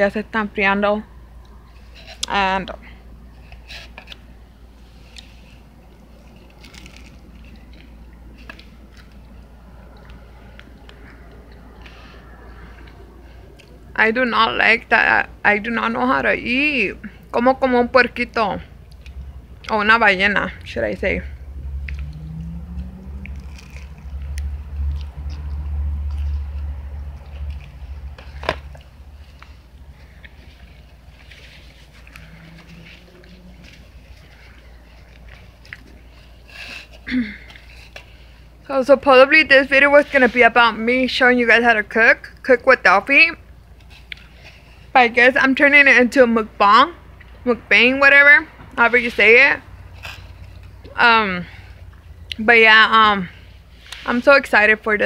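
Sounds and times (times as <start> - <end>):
crunching while chewing: 3.4 - 13.8, 18.8 - 19.7, 21.6 - 38.5, 43.5 - 44.9, 49.8 - 51.0
low rumble: 18.7 - 35.8.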